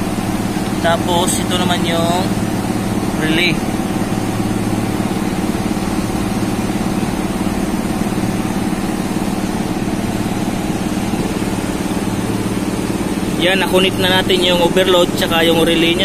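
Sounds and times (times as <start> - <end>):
machinery humming: 0.0 - 16.0.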